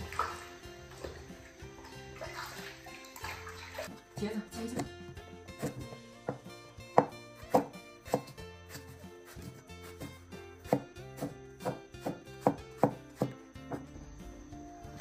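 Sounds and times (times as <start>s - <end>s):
background music: 0.0s - 15.0s
cleaver chopping on wooden board: 5.6s - 13.9s.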